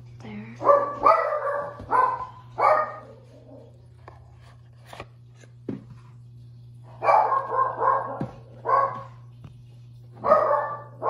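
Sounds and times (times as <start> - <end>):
steady low hum: 0.0 - 11.0
dog barking: 0.6 - 3.7, 7.0 - 9.2, 10.2 - 11.0.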